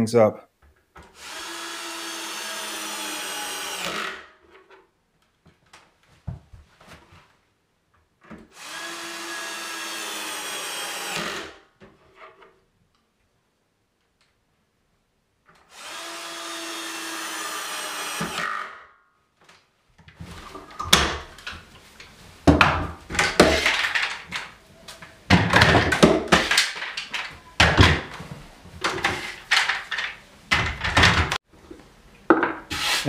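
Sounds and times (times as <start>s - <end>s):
cordless drill running: 1.2s - 4.2s, 8.6s - 11.5s, 15.7s - 18.8s.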